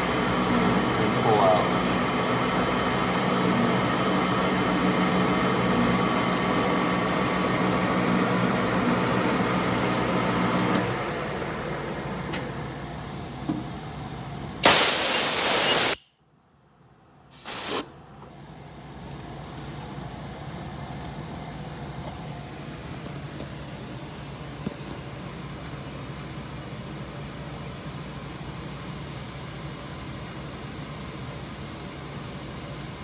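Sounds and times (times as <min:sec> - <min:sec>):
metal lathe running: 0:00.0 - 0:12.1
boring bar cutting metal: 0:14.6 - 0:16.0
short loud hisses: 0:14.6 - 0:16.1, 0:17.3 - 0:17.9.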